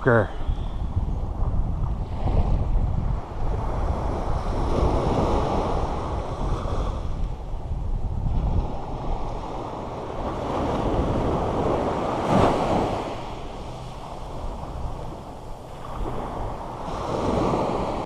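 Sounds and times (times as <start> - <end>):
wind rumbling on microphone: 0.0 - 18.0.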